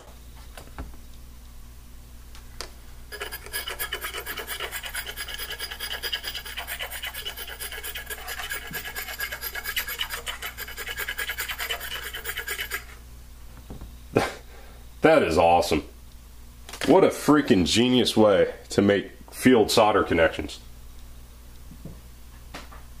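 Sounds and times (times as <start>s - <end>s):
knife blade scraping: 3.1s - 13.0s.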